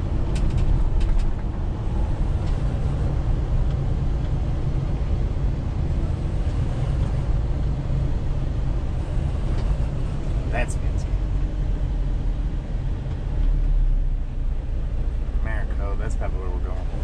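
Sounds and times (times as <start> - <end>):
truck engine and road drone: 0.0 - 17.0.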